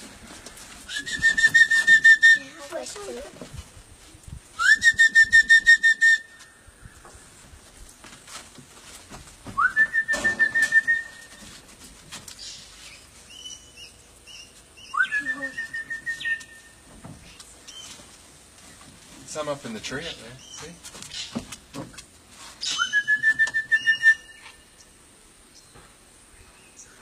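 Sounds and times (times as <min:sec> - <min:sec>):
trilled whistle calls: 0:00.9 - 0:02.7, 0:04.6 - 0:06.6, 0:09.6 - 0:11.4, 0:13.3 - 0:16.8, 0:22.6 - 0:25.0.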